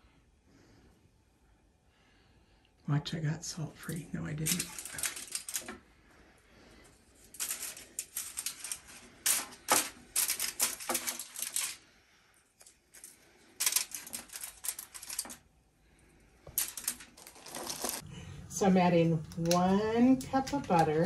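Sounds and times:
crackers and foil crinkling: 3.8s - 18.1s, 19.2s - 21.0s.

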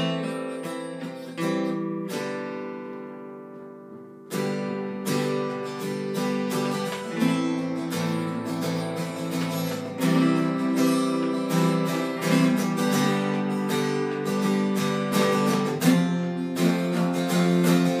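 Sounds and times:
acoustic guitars strumming: 0.0s - 18.0s.

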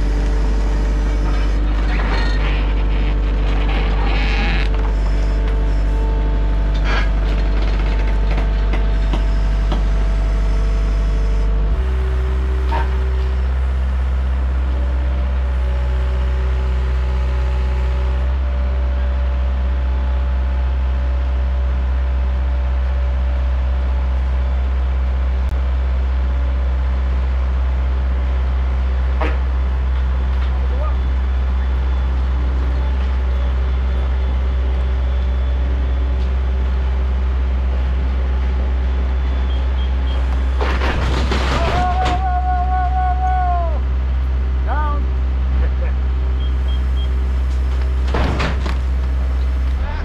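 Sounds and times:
diesel loader engines running: 0.0s - 50.0s.

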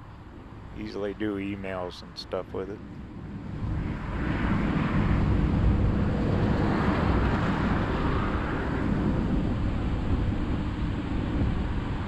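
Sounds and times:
van engine and tyre rumble: 2.7s - 12.0s.

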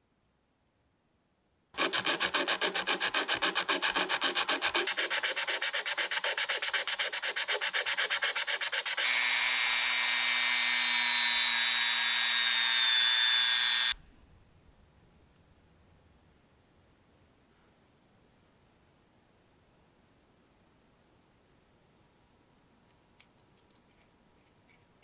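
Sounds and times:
metal washer scraping on sandpaper: 1.8s - 9.1s
rotary tool whining: 1.8s - 14.0s.

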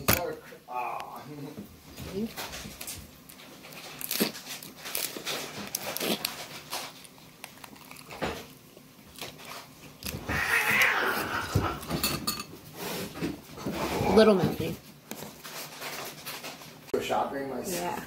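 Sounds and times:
wet chewing and lip-smacking: 4.0s - 10.1s.

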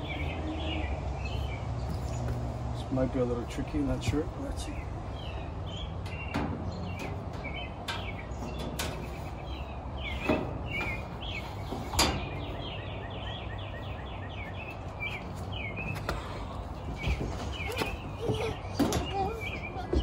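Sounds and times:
birds chirping: 0.0s - 20.0s
sheet metal panels clanking: 5.8s - 12.6s.

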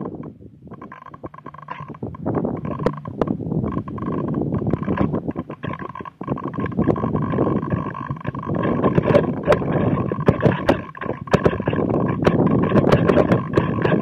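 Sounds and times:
sharp clicks and rattles: 0.0s - 14.0s
wind buffeting microphone: 0.0s - 14.0s.

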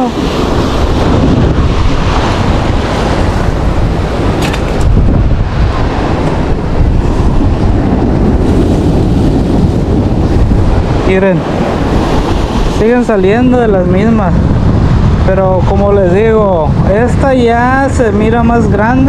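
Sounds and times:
surf washing on beach: 0.0s - 19.0s
wind buffeting microphone: 0.0s - 19.0s.

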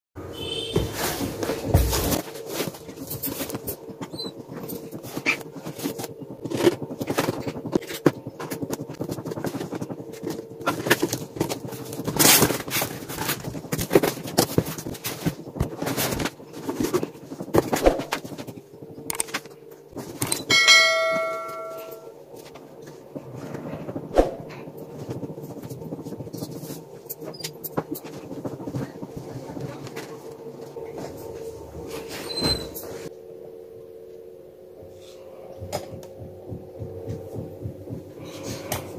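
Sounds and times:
notification bell ding: 20.4s - 22.1s.

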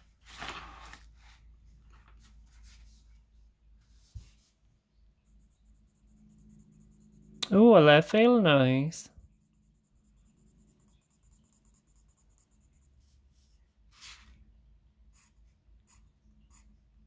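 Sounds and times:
pencil strokes on paper: 5.2s - 14.4s, 15.1s - 16.8s.

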